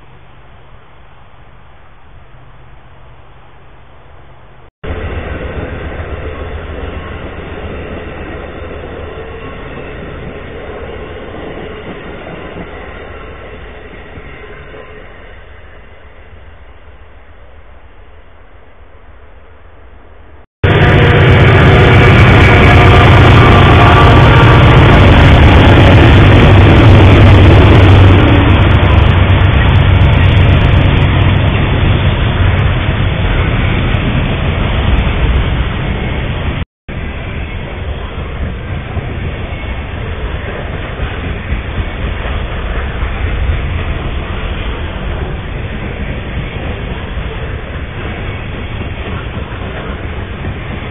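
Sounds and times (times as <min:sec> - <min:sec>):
passenger train passing: 0:00.0 - 0:50.9
rumble of wheels on rail: 0:00.0 - 0:50.9
low drone: 0:20.6 - 0:35.7.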